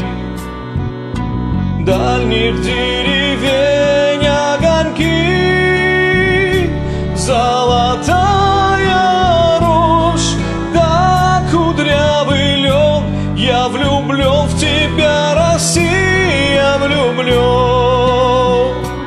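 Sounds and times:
karaoke backing track: 0.0 - 19.0
man singing: 1.8 - 19.0.

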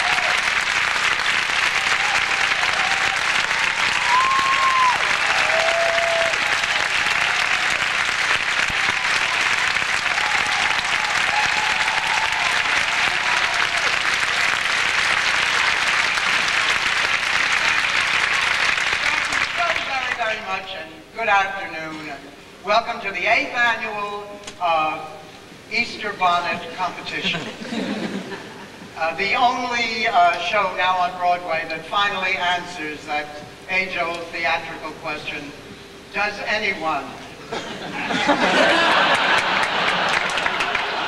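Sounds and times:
audience applauding: 0.0 - 19.9, 38.2 - 41.0.

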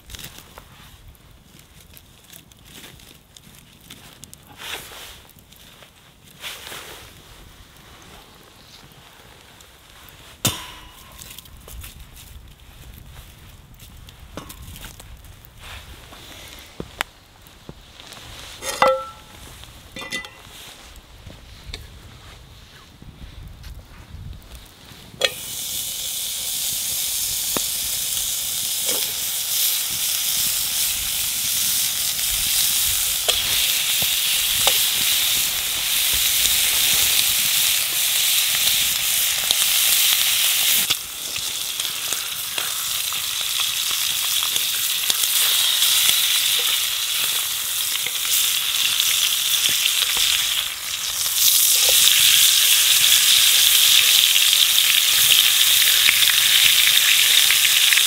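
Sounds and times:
small pops and crackles: 0.0 - 19.8, 26.8 - 58.0
food sizzling in a pan: 18.3 - 20.7, 25.2 - 58.0.

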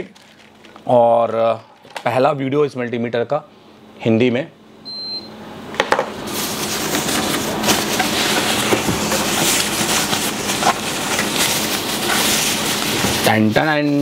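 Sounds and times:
plastic wrapping crinkling: 0.0 - 1.0, 6.2 - 14.0.

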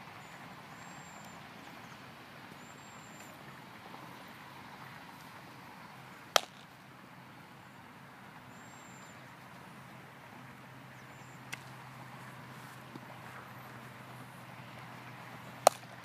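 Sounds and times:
faint outdoor hum: 0.0 - 16.0
baseball smacking leather glove: 6.4 - 6.6, 15.6 - 16.0.

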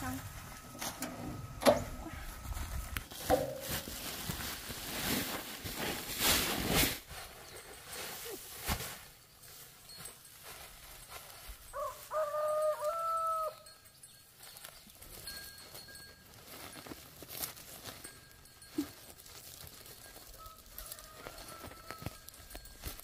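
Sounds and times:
plastic sacks rustling and knocking: 0.0 - 11.8, 14.4 - 23.0
rooster crowing: 11.7 - 13.6, 20.4 - 22.3.

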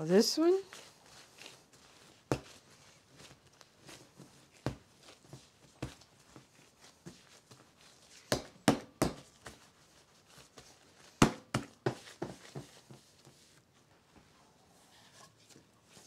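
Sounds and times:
dough slapping on countertop: 0.7 - 13.5.

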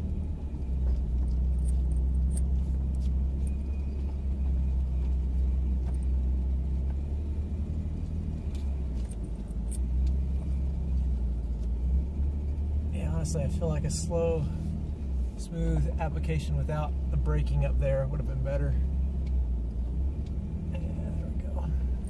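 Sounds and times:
truck engine running at low revs: 0.0 - 22.0
light clicks and rattles: 8.0 - 11.8.

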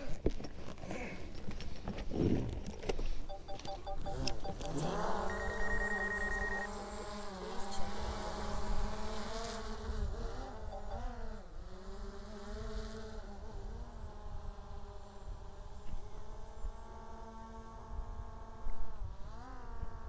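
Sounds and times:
clicks: 3.3 - 6.7
short beeps: 3.3 - 6.7, 10.6 - 11.2
drone propellers buzzing: 3.6 - 6.7.

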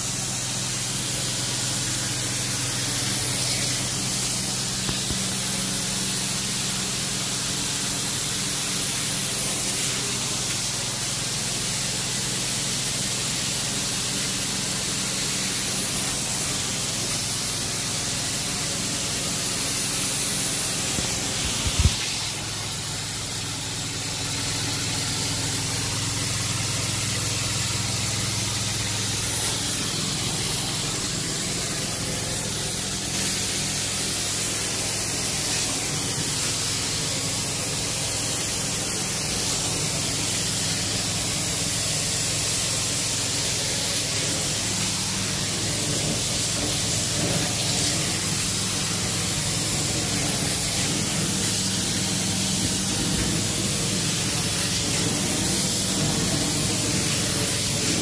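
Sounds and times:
spray and suction hiss: 0.0 - 58.0.

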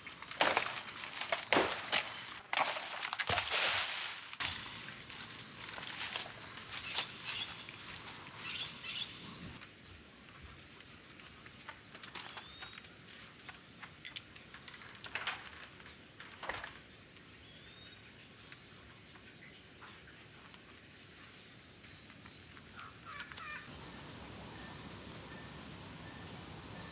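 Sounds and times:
bananas rustling and crackling: 0.0 - 9.8, 10.4 - 17.0
bird chirps: 8.3 - 9.6.

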